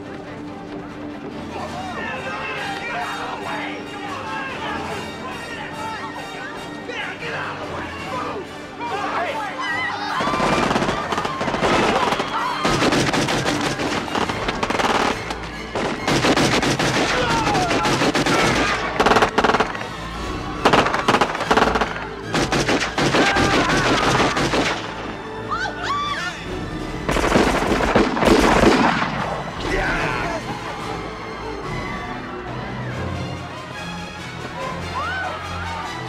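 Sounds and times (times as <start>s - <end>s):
orchestral score: 0.0s - 36.0s
people screaming: 7.0s - 15.2s, 17.0s - 22.2s, 22.9s - 26.7s, 29.1s - 33.5s, 34.4s - 36.0s
automatic gunfire: 10.2s - 19.8s, 20.6s - 24.8s, 27.1s - 29.2s.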